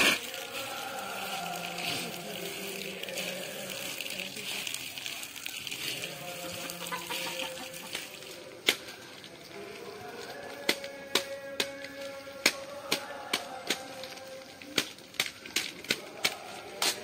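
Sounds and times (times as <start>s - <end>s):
hand squelching wet grain: 0.0s - 8.4s
water pouring into tub: 0.0s - 10.4s.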